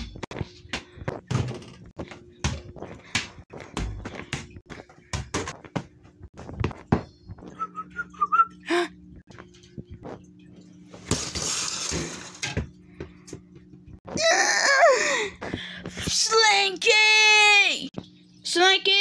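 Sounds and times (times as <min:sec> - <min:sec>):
faint whistle: 0:07.6 - 0:08.7.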